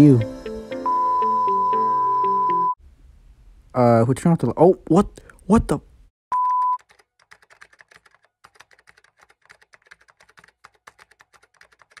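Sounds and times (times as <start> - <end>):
keyboard typing clicks: 6.6 - 12.0.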